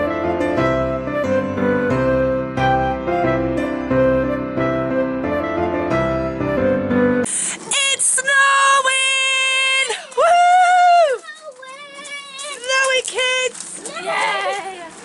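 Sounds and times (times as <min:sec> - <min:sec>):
soft piano music: 0:00.0 - 0:07.3.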